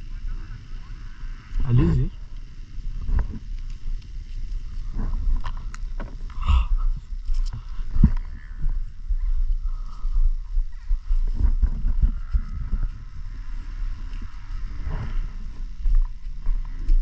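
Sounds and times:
action camera rumbling and knocking: 0:03.0 - 0:08.8, 0:10.8 - 0:13.3.

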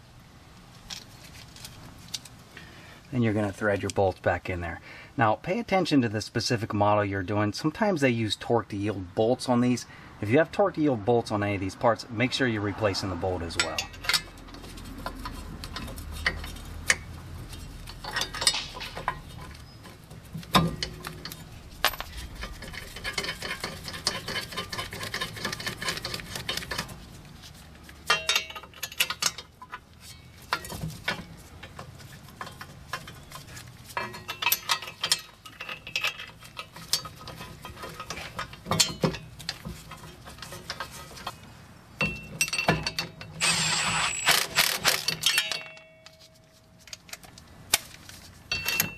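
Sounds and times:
metal clinks and knocks: 0:13.5 - 0:27.0, 0:28.0 - 0:41.4, 0:42.0 - 0:43.5, 0:44.1 - 0:47.4, 0:48.2 - 0:48.9.

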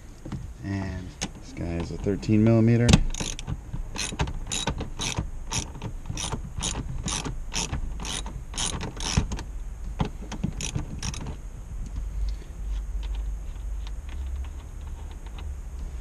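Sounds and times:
ratchet wrench clicking: 0:03.1 - 0:09.3, 0:10.5 - 0:11.2.

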